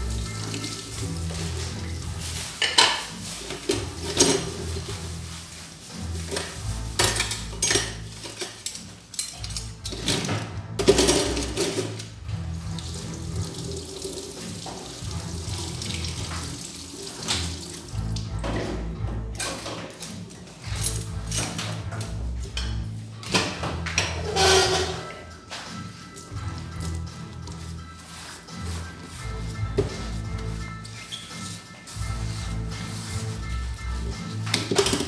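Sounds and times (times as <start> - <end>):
tap running and water splashing: 0.0 - 5.2, 10.9 - 19.4
music: 0.0 - 35.0
dishes clinking against sink: 2.6 - 4.8, 6.3 - 12.1, 18.4 - 25.3.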